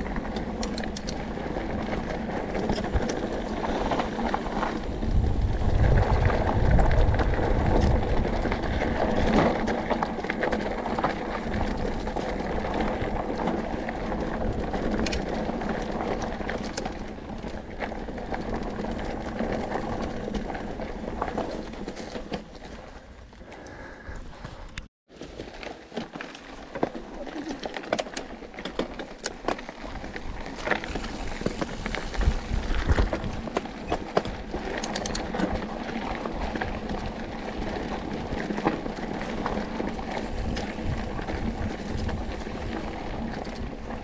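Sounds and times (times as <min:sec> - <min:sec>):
wind rumble on microphone: 0:00.0 - 0:24.9, 0:29.8 - 0:44.0
bike rattling: 0:00.0 - 0:44.0
tyres crunching over dirt and stones: 0:25.1 - 0:44.0.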